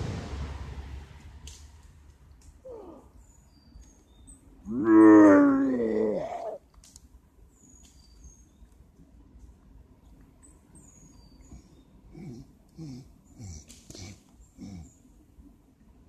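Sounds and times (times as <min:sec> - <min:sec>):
drawn-out howling cry: 0:04.6 - 0:06.6.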